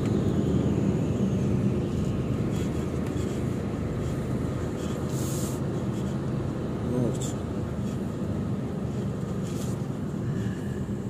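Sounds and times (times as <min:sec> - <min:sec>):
diesel lorry engine running: 0:00.0 - 0:11.0.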